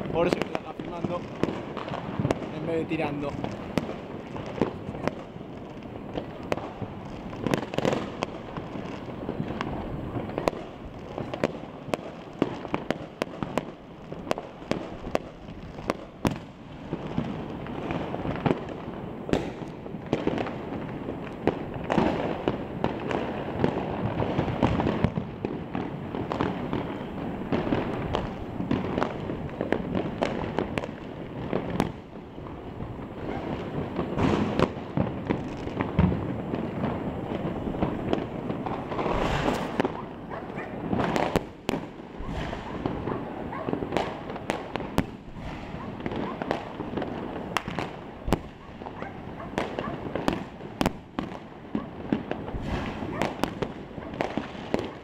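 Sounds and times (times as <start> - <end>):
fireworks and firecrackers crackling: 0.0 - 55.0.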